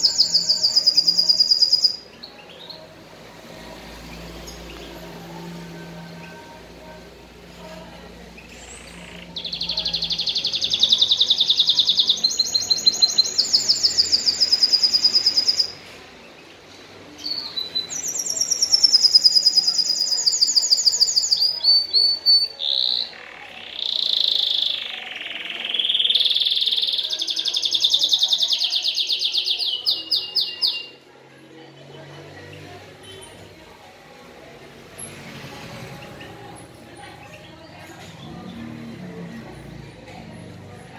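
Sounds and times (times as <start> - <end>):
canary singing trills: 0.0 - 15.9, 17.2 - 31.1.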